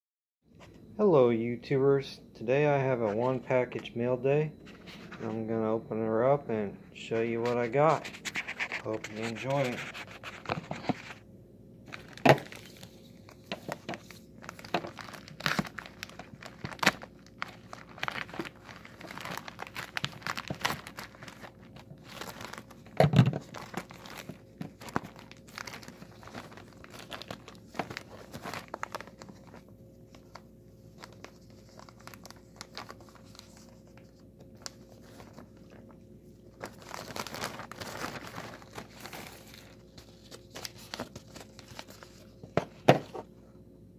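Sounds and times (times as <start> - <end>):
plastic rustling: 7.2 - 11.2, 11.8 - 43.3
plastic mailer crinkling and tearing: 7.4 - 11.2, 11.9 - 43.2.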